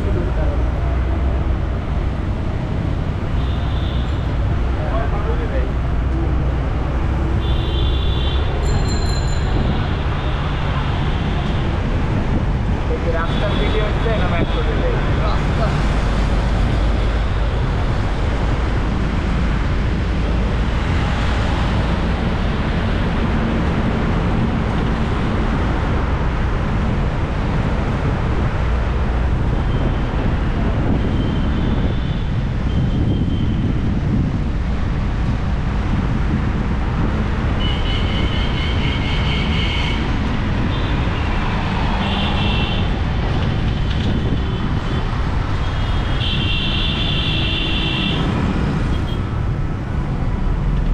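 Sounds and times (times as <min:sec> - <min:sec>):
rumble of road traffic: 0:00.0 - 0:50.9.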